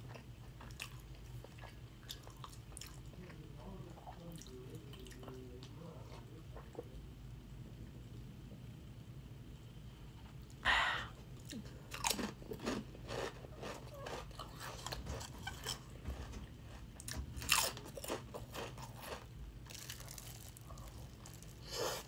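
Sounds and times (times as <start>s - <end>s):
crunching chips: 11.9s - 22.0s.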